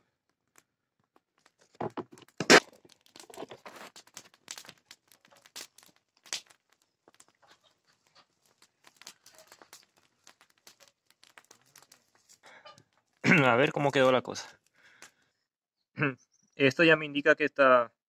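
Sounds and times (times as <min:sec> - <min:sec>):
hot oil crackling and spitting: 0:01.2 - 0:15.2.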